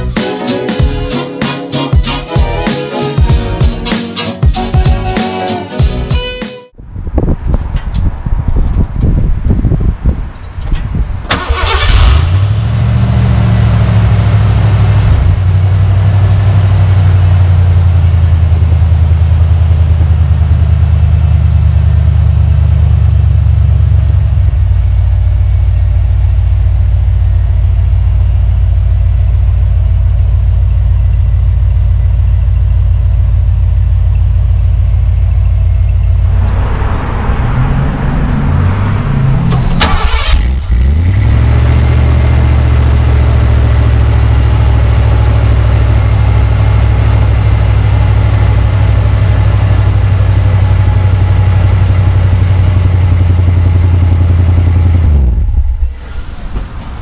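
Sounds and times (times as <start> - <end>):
car engine idling: 11.3 - 57.0.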